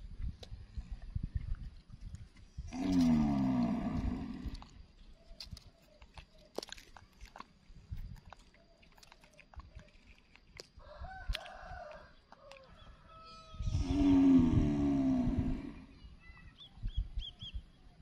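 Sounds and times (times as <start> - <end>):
rooster crowing: 10.8 - 13.7.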